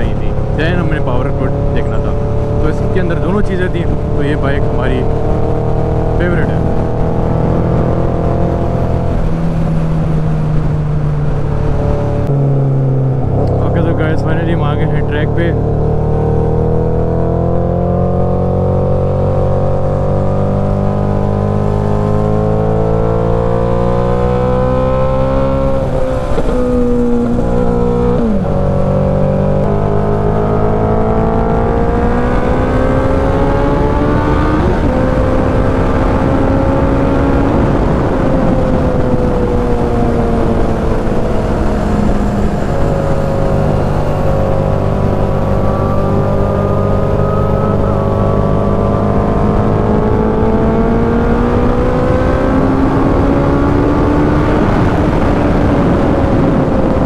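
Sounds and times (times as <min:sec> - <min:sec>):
motorcycle engine running: 0:13.1 - 0:57.0
wind rush: 0:19.0 - 0:57.0.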